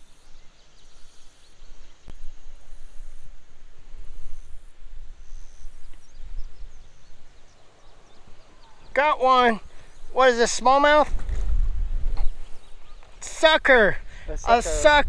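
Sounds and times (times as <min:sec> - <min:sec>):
insect buzzing: 0:00.0 - 0:08.8
wind rumbling on microphone: 0:00.0 - 0:15.0
faint bird chirps: 0:04.0 - 0:09.0, 0:12.1 - 0:13.2.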